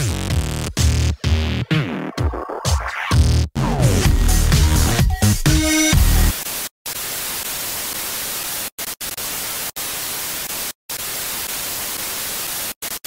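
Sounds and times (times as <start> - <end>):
television static hiss: 6.3 - 13.0.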